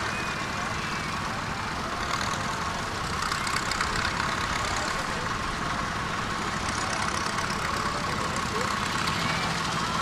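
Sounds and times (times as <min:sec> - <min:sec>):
tractor engine driving past: 0:00.0 - 0:10.0
voices in background: 0:00.7 - 0:09.8.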